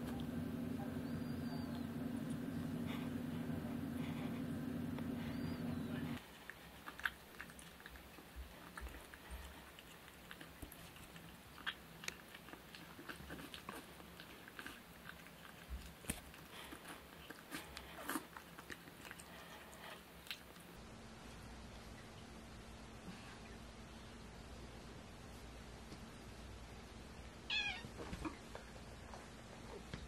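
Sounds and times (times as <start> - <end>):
kittens chewing: 0.0 - 22.1.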